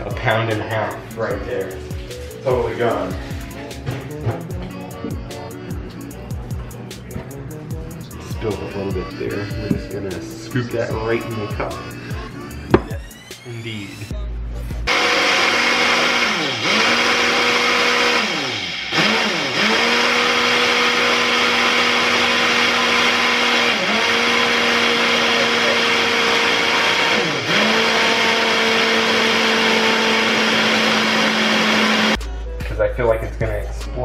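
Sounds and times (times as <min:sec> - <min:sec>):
blender motor humming: 0:14.9 - 0:32.2.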